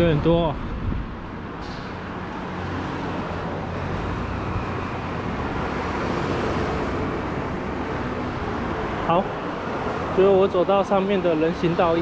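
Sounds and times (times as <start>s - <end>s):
passing cars: 0.0s - 12.0s.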